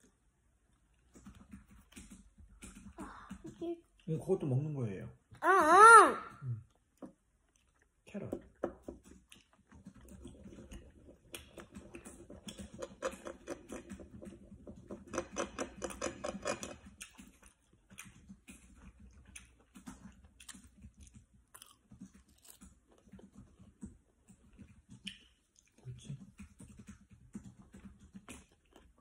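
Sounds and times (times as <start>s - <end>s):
soft chewing: 6.4s - 29.0s.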